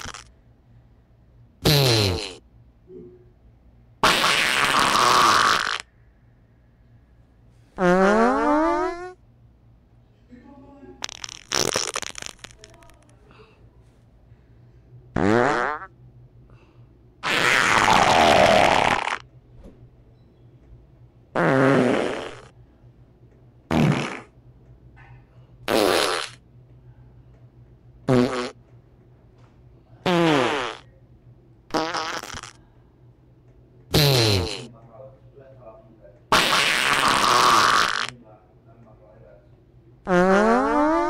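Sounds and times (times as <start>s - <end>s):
farts: 0.0s - 0.3s, 1.6s - 2.4s, 4.0s - 5.9s, 7.8s - 9.2s, 11.0s - 13.0s, 15.2s - 15.9s, 17.2s - 19.3s, 21.4s - 22.5s, 23.7s - 24.4s, 25.7s - 26.4s, 28.1s - 28.6s, 30.0s - 30.9s, 31.7s - 32.6s, 33.9s - 34.7s, 36.3s - 38.2s, 40.0s - 41.0s.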